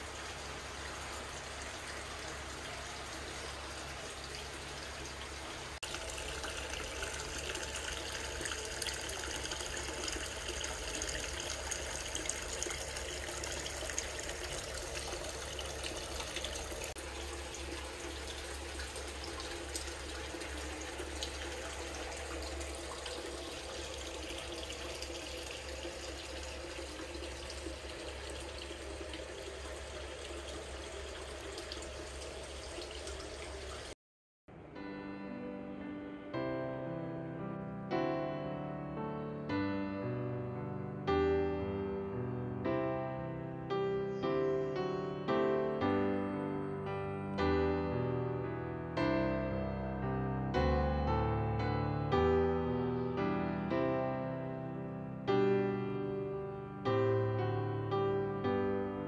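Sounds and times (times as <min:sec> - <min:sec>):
water pouring into a tub: 0:00.0 - 0:34.0.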